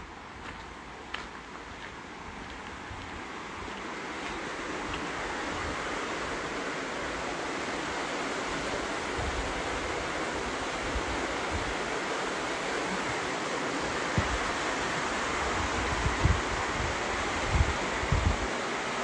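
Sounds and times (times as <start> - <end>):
wind buffeting microphone: 14.0 - 18.6.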